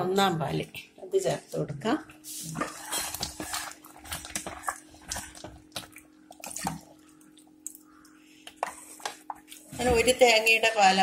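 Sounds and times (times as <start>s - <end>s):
milk pouring into thick mixture: 2.4s - 9.6s.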